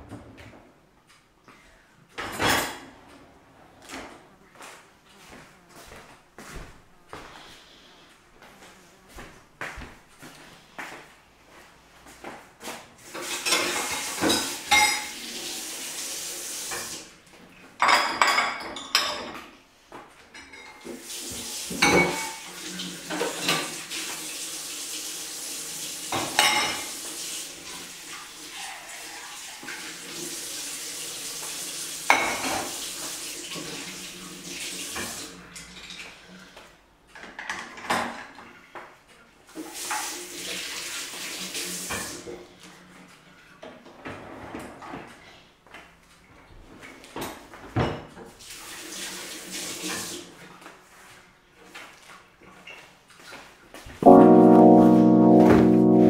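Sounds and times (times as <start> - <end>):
running tap water: 13.0 - 17.2, 20.8 - 36.0, 39.5 - 42.4, 48.4 - 50.3.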